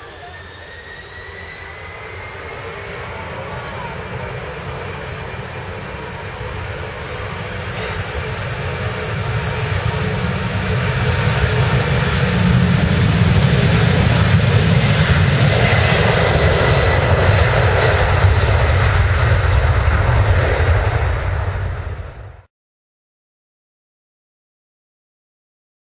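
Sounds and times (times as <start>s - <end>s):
jet engines at take-off thrust: 0.0s - 22.5s.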